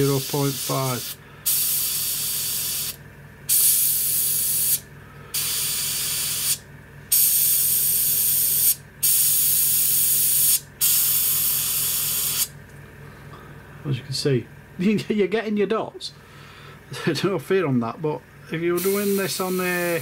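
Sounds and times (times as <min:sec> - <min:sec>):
airbrush spraying in hissing blasts: 0:00.0 - 0:12.5, 0:18.8 - 0:20.0
low steady hum: 0:00.0 - 0:20.0.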